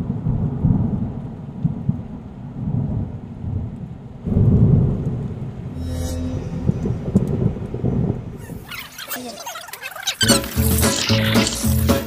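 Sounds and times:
thunder rumbling: 0.0s - 8.8s.

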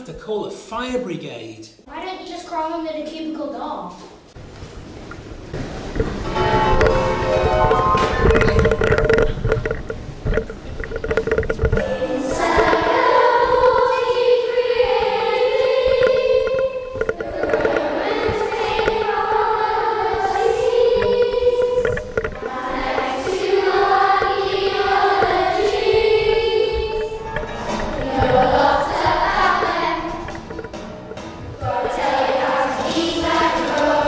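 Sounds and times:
children's choir singing: 11.8s - 30.8s, 31.5s - 34.0s.

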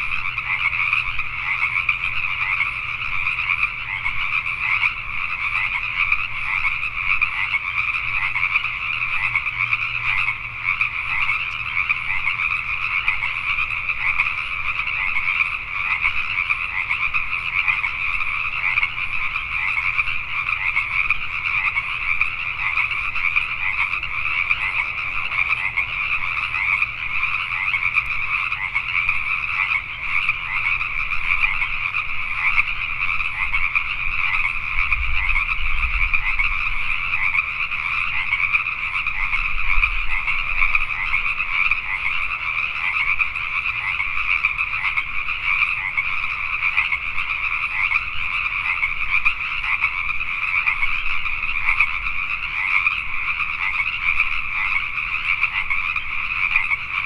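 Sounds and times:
chorus of tree frogs calling: 0.0s - 57.0s.

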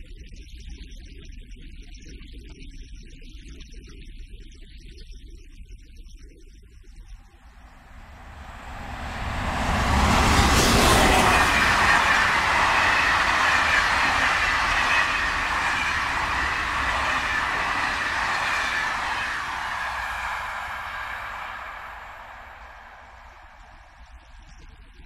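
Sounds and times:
high whine: 7.6s - 24.1s
train wheels on rails: 7.6s - 24.1s.

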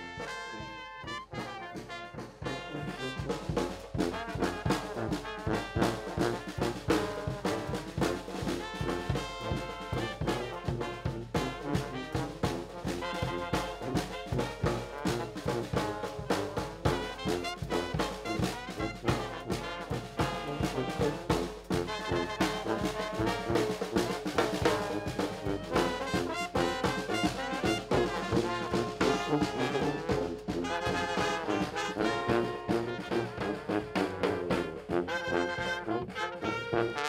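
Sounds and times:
clarinet: 0.0s - 37.0s
saxophone: 0.0s - 37.0s
trombone: 0.0s - 37.0s
trumpets: 0.0s - 37.0s
bass drum steady beat: 1.4s - 35.1s.

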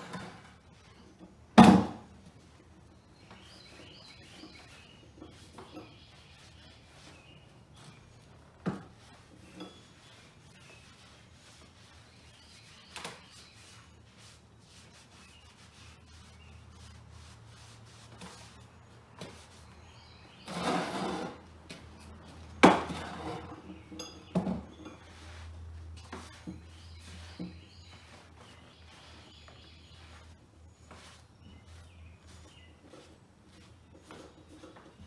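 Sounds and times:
tools scraping on wooden bench: 0.0s - 2.0s, 3.3s - 13.9s, 19.2s - 21.8s, 22.6s - 35.0s.

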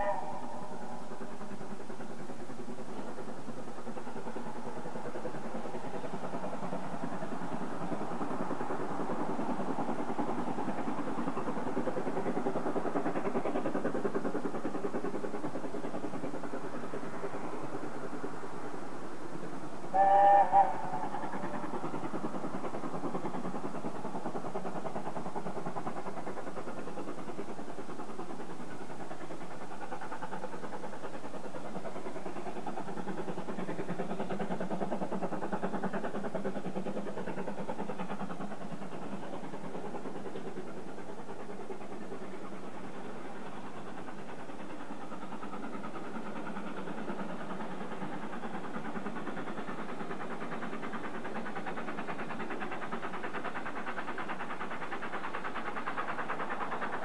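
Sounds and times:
steam locomotive exhaust beat: 0.0s - 57.0s
two-part pitched hoot: 20.0s - 21.0s.

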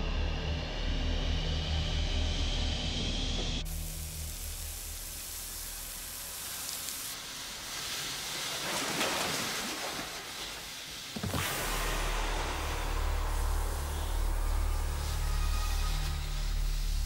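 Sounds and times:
steady hiss: 3.6s - 17.0s.

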